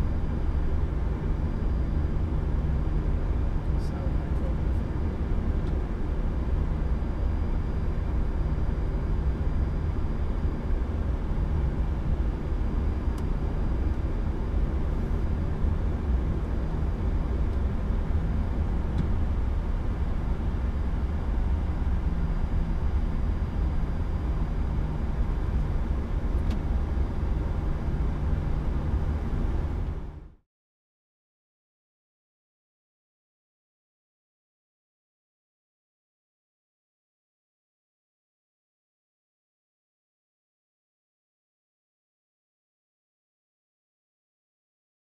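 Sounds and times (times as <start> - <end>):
jet engines idling: 0.1 - 30.3.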